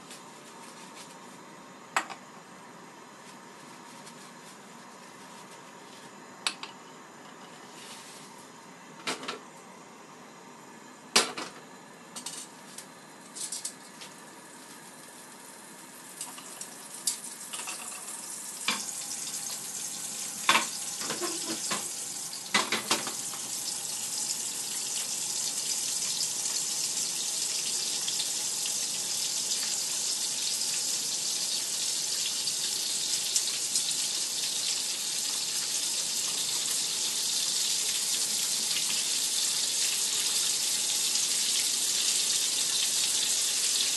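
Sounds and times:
food sizzling in butter: 16.1 - 43.9.

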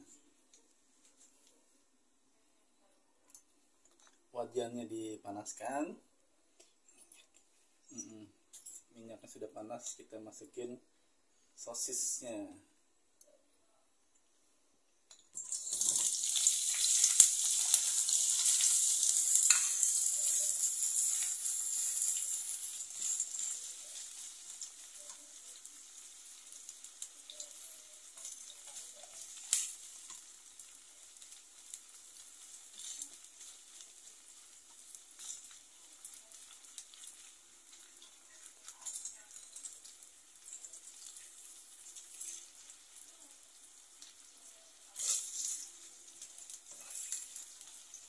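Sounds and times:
sausages sizzling in oil: 15.1 - 48.0
spatula scraping pan: 17.1 - 24.3, 44.9 - 47.4.

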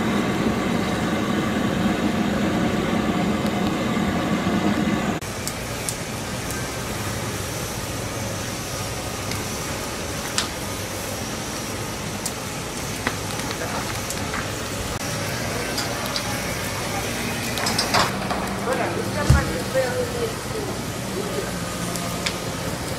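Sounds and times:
fire rushing: 0.0 - 22.9
crackling pops: 10.2 - 10.6, 12.2 - 14.6.

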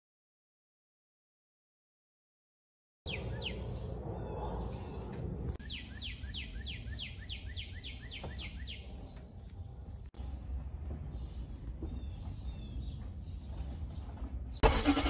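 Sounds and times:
steady low rumble: 3.1 - 14.6.

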